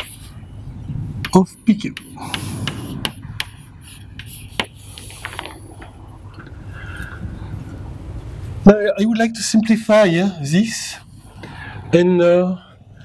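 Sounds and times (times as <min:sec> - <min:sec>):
chalk tapping on blackboard: 0:00.0 - 0:00.3, 0:01.2 - 0:05.4
chalk scratching: 0:00.0 - 0:00.4, 0:01.9 - 0:05.5.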